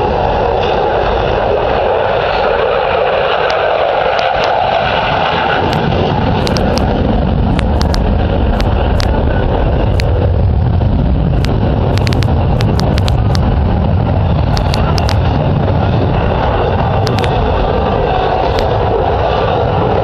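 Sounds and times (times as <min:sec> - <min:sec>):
jet engine roar: 0:00.0 - 0:20.0
sharp crackles: 0:05.6 - 0:10.2, 0:11.3 - 0:13.6, 0:14.4 - 0:15.4, 0:16.9 - 0:17.5.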